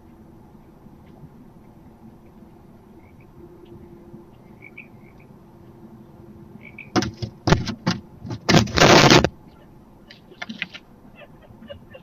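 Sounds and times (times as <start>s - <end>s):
scuffling knocks in wooden box: 7.0s - 9.3s.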